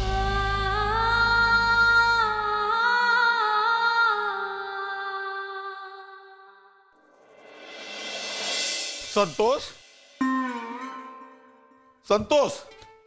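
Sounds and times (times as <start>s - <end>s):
woman singing wordless melody: 0.0s - 6.8s.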